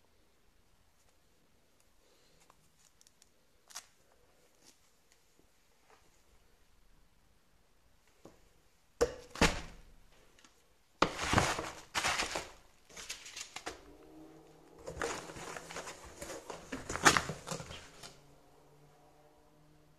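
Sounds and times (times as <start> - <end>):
bubble wrap crinkling: 2.3 - 5.3, 11.0 - 13.9, 14.8 - 18.1
cardboard carton handled: 11.0 - 13.8, 14.8 - 18.2.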